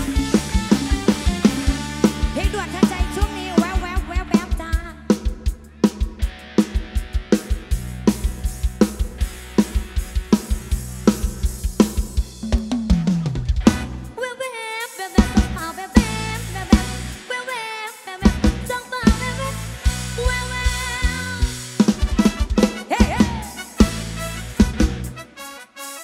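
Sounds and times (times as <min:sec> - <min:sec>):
bending melodic lead lines: 0:00.0 - 0:04.9
bass: 0:00.0 - 0:14.3, 0:15.2 - 0:17.4, 0:18.2 - 0:25.4
drum kit keeping a steady beat: 0:00.0 - 0:26.0.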